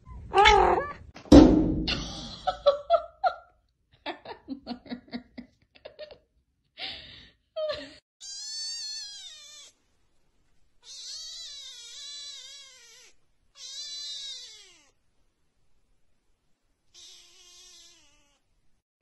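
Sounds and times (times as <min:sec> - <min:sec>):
kitten meowing: 0:00.3 - 0:01.0, 0:08.2 - 0:09.8, 0:10.8 - 0:15.0, 0:16.9 - 0:18.4.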